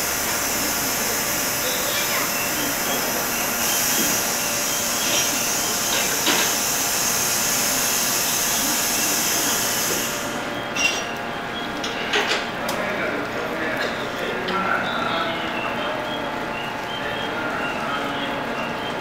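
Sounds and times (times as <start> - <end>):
train high hiss: 0.0 - 10.6.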